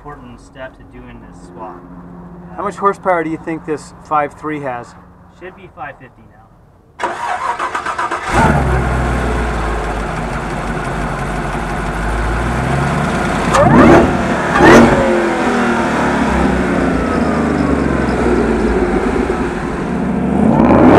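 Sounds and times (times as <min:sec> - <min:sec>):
car engine starting and idling: 0:07.0 - 0:20.9
engine revving: 0:07.0 - 0:20.9.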